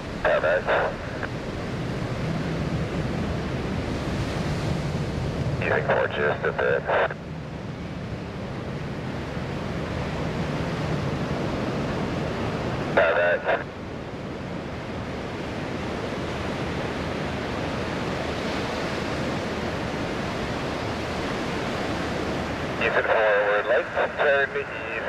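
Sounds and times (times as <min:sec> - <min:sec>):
steady rushing noise: 0:00.0 - 0:25.0
short burst of voice: 0:13.0 - 0:13.6.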